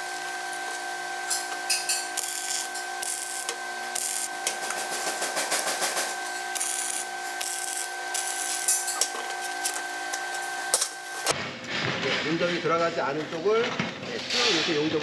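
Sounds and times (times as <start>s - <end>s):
steady hum: 0.0s - 11.3s
welding arc crackling and hissing: 2.1s - 11.3s.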